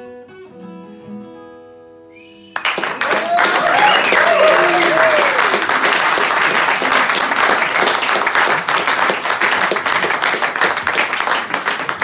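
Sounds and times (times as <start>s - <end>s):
audience applauding: 2.5s - 12.0s.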